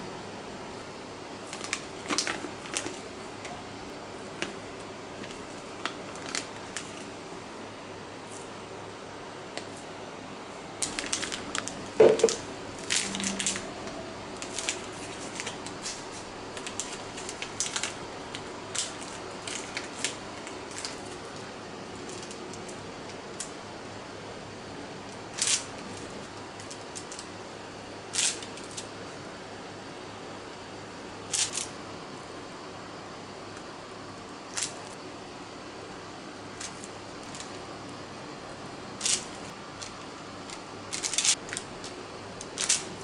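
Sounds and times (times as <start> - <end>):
plastic bag crinkling: 1.4 - 3.0, 5.2 - 7.0, 10.8 - 13.8, 14.4 - 21.4.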